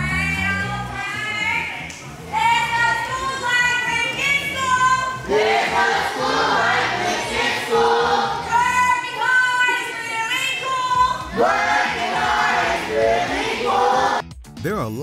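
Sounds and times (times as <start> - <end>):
children singing: 5.2 - 8.7, 11.3 - 14.2.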